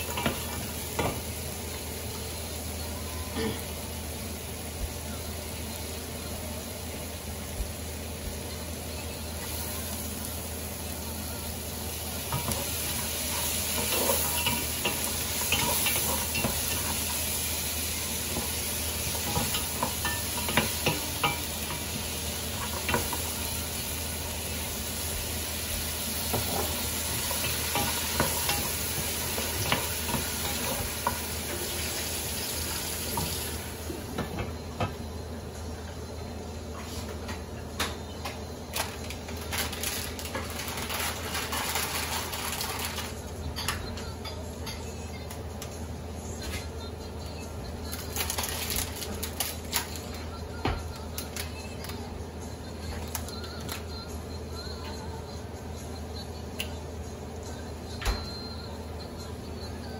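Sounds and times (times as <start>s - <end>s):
food sizzling in a frying pan: 0.0s - 35.6s, 38.9s - 43.3s.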